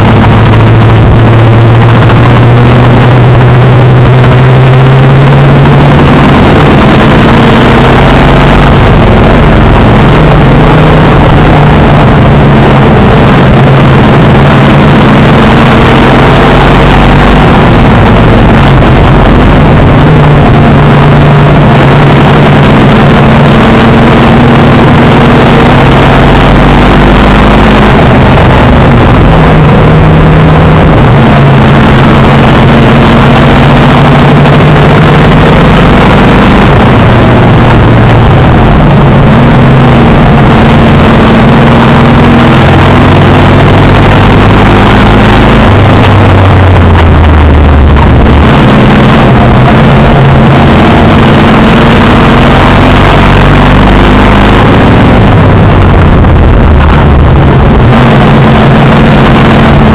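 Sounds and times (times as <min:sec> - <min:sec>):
other car engines nearby: 0:00.0 - 0:59.9
stock car engine racing: 0:00.0 - 0:59.9.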